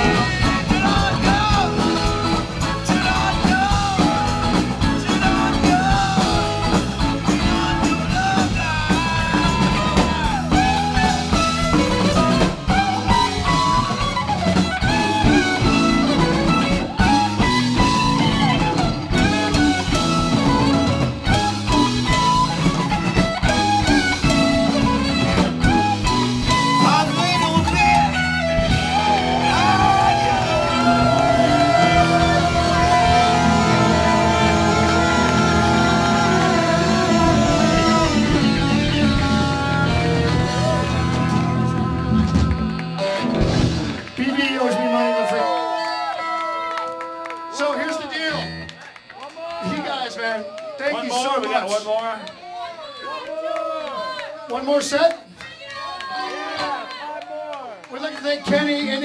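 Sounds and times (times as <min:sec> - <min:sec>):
electric guitar sliding bent notes: 0:00.0 - 0:44.1
blues-rock band playing: 0:00.0 - 0:44.3.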